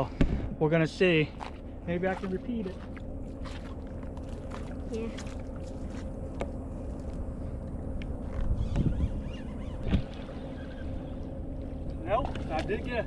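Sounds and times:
wind rumbling on microphone: 0:02.8 - 0:13.0.

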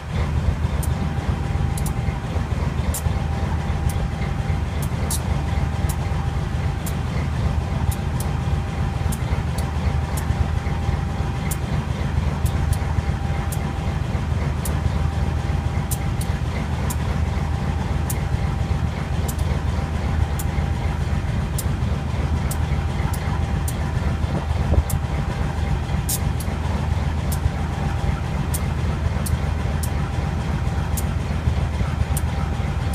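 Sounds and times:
diesel engine idling: 0:00.0 - 0:32.9
sharp ticks: 0:01.7 - 0:02.1, 0:04.8 - 0:06.1, 0:07.8 - 0:08.4, 0:09.0 - 0:10.4, 0:11.4 - 0:11.7, 0:12.4 - 0:13.8, 0:14.5 - 0:14.9, 0:15.8 - 0:17.2, 0:19.2 - 0:19.7, 0:21.5 - 0:21.8, 0:22.4 - 0:23.8, 0:27.2 - 0:27.5, 0:28.5 - 0:30.0, 0:30.9 - 0:31.2, 0:32.0 - 0:32.5.

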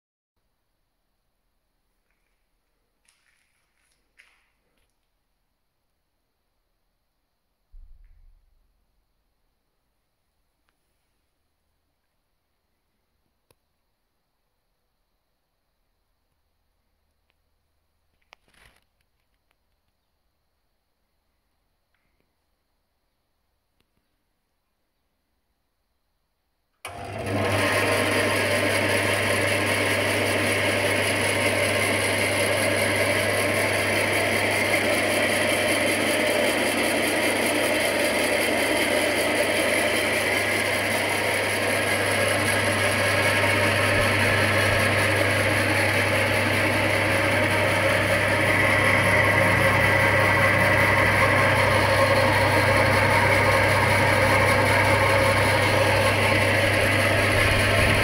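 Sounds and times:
band saw running: 0:26.9 - 0:58.0.

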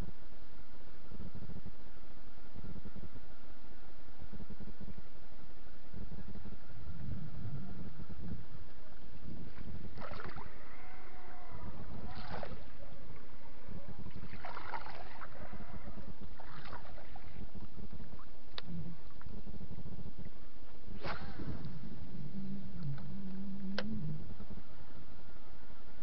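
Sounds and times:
steady low rumble: 0:00.0 - 0:26.0
lure splashing through water: 0:09.9 - 0:10.8, 0:11.9 - 0:12.9, 0:14.0 - 0:17.4.

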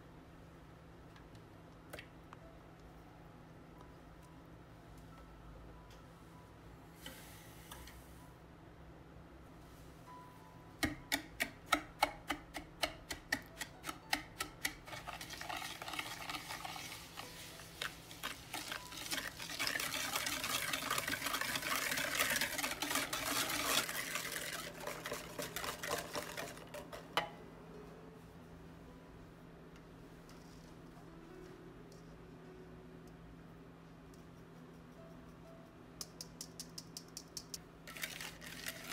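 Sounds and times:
whisk clicking in glass bowl: 0:18.2 - 0:27.1.

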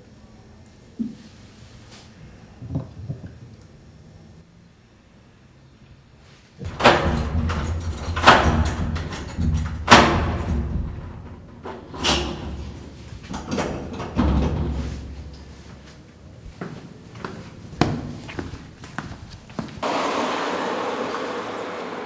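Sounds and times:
door lock clacks and knocks: 0:06.6 - 0:12.7.

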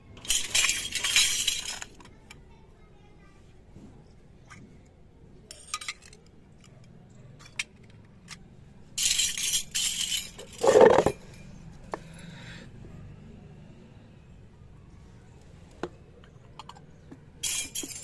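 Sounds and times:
metal utensils clattering: 0:00.2 - 0:02.0, 0:09.0 - 0:11.4, 0:17.4 - 0:18.0
metal utensils clinking: 0:00.2 - 0:02.0, 0:05.5 - 0:06.2, 0:09.0 - 0:11.6, 0:17.4 - 0:18.0
utensils scraping on concrete: 0:09.0 - 0:11.5, 0:17.4 - 0:18.0.

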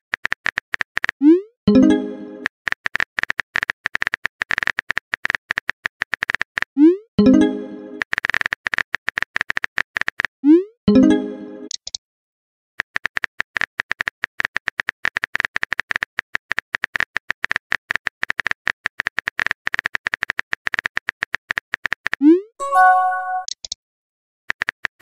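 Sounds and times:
brief chime: 0:22.6 - 0:23.5.

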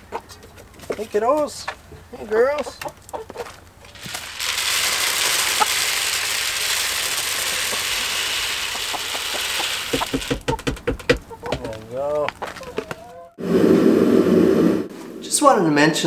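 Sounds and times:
grain pouring from plastic scoop: 0:03.9 - 0:10.3
knocks: 0:09.9 - 0:11.8.

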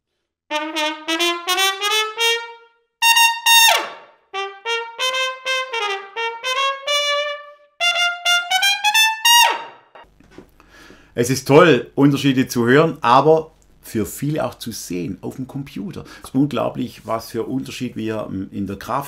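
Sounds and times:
trumpet playing melodic passage: 0:00.5 - 0:10.0.

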